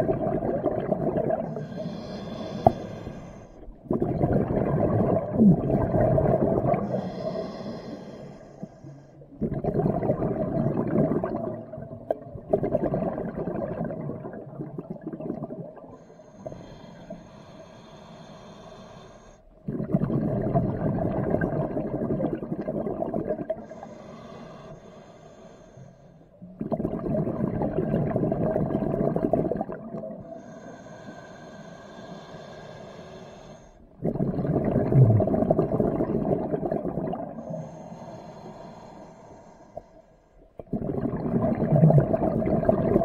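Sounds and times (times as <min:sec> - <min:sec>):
bubbling underwater exhalations: 0:00.0 - 0:08.0, 0:09.3 - 0:16.0, 0:19.6 - 0:23.8, 0:26.4 - 0:30.6, 0:33.9 - 0:37.9, 0:40.6 - 0:43.0
regulator hiss on inhale: 0:01.5 - 0:03.8, 0:06.7 - 0:09.4, 0:15.9 - 0:19.6, 0:23.6 - 0:26.4, 0:30.2 - 0:34.0, 0:37.4 - 0:40.6.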